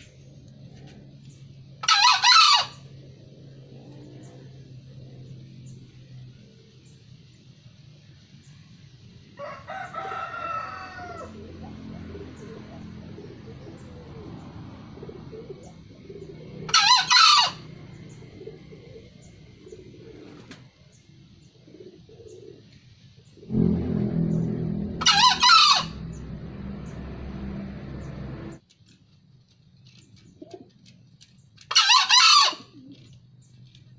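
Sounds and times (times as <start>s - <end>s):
junglefowl crowing: 1.8s - 2.9s, 9.4s - 11.8s, 16.6s - 17.7s, 23.5s - 28.6s, 31.7s - 32.9s
low rumble: 23.4s - 28.6s.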